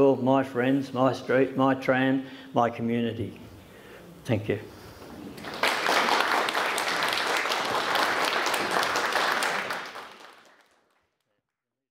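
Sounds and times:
audience applauding: 0:05.4 - 0:11.1.

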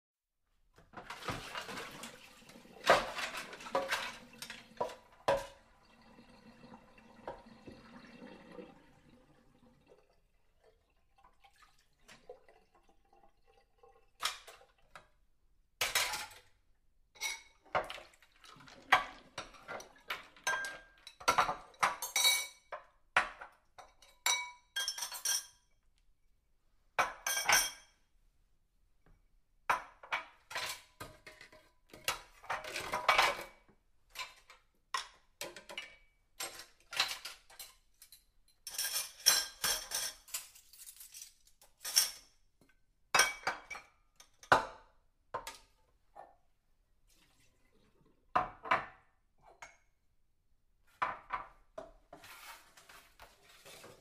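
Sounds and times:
dishes and cutlery clinking: 0:17.2 - 0:18.0, 0:18.8 - 0:25.7, 0:27.0 - 0:28.0, 0:29.8 - 0:42.3.

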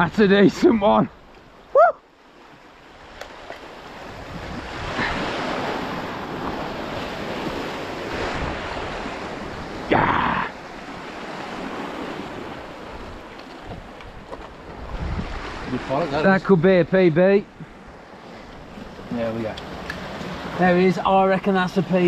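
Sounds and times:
sea waves washing against rocks: 0:02.4 - 0:22.0
wind buffeting microphone: 0:03.8 - 0:16.6.

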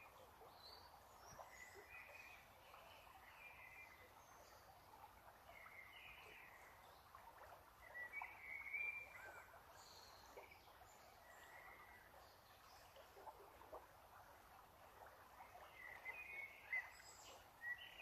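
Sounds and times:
faint songbird calls: 0:07.8 - 0:13.8, 0:15.5 - 0:18.0.

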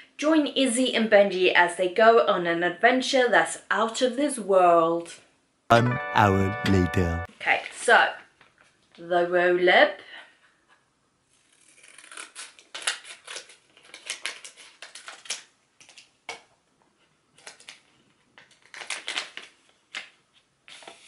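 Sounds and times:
wrapper crinkling: 0:12.7 - 0:16.1, 0:17.4 - 0:20.2.

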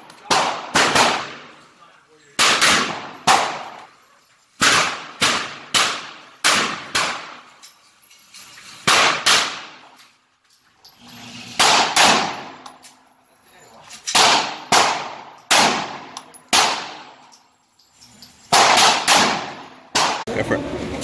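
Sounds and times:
rifle shots echoing indoors: 0:00.2 - 0:01.7, 0:02.4 - 0:03.9, 0:04.6 - 0:07.5, 0:08.8 - 0:10.0, 0:11.5 - 0:12.7, 0:14.1 - 0:17.2, 0:18.5 - 0:20.2.

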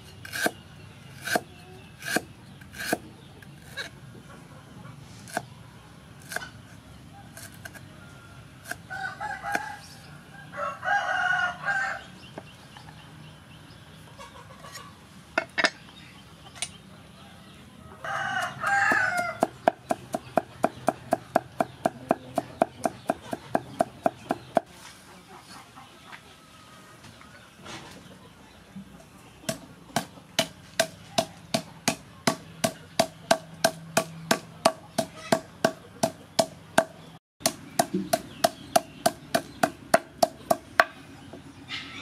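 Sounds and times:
rooster crowing: 0:07.9 - 0:12.2, 0:17.8 - 0:19.5
cleaver chopping on wooden board: 0:18.8 - 0:24.7, 0:29.5 - 0:41.0.

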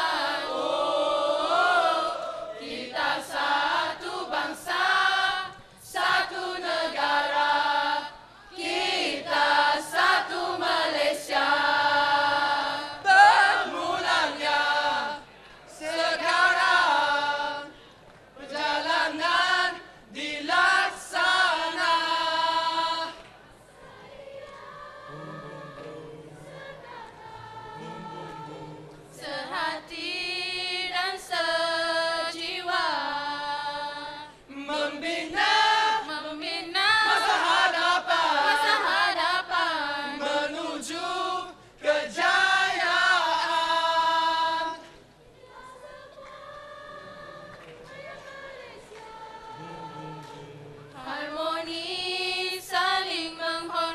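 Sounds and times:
mixed choir singing: 0:00.0 - 0:53.9.

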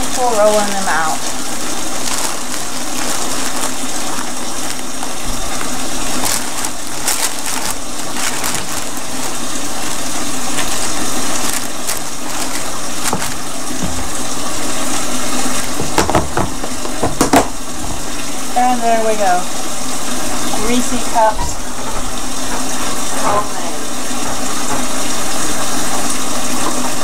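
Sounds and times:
tap water running into sink: 0:00.0 - 0:27.0.

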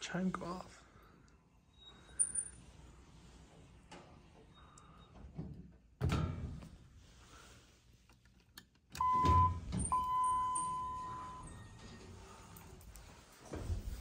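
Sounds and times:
elevator lantern chime: 0:09.0 - 0:12.3.

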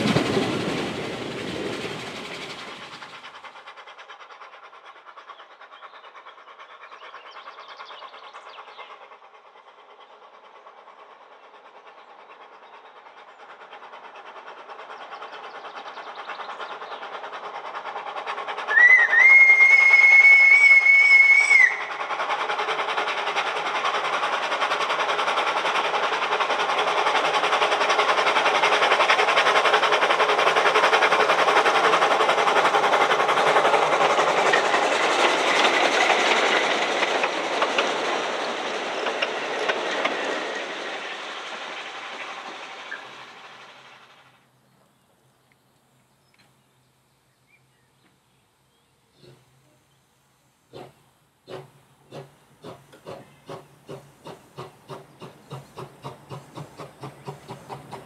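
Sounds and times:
steam train running past: 0:00.0 - 0:45.3, 0:45.9 - 0:58.0
steam locomotive whistle: 0:18.7 - 0:21.9.

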